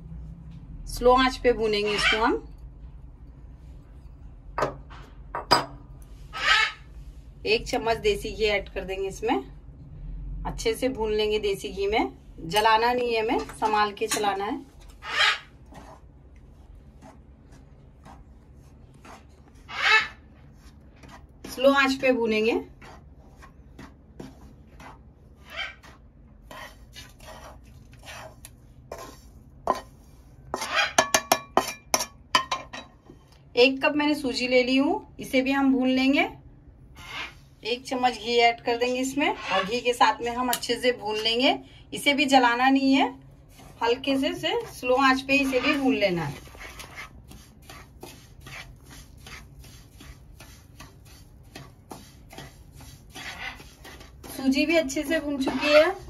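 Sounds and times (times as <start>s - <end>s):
spoon scraping in a pan: 12.5s - 33.0s, 37.0s - 41.4s, 42.3s - 56.0s
utensils clinking against pan: 30.6s - 33.0s.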